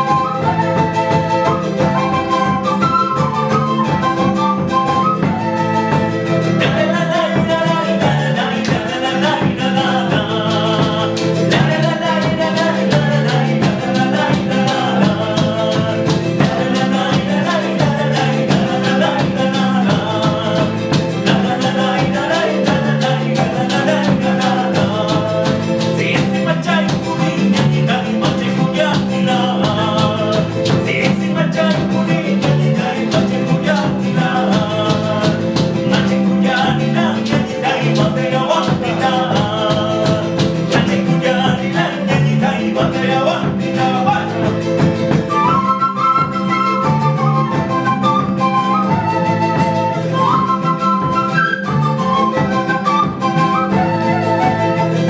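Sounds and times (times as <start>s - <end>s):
quena flute melody: 0.0s - 28.0s, 44.2s - 55.0s
strummed charango and guitar: 0.0s - 55.0s.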